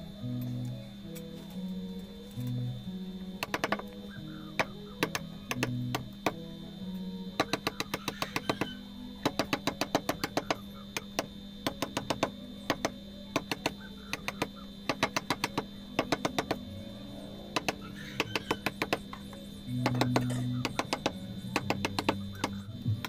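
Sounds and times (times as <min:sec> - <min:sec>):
background music: 0:00.0 - 0:23.0
mallet tapping chisel on stone: 0:07.4 - 0:16.6, 0:17.6 - 0:19.2, 0:19.8 - 0:22.6.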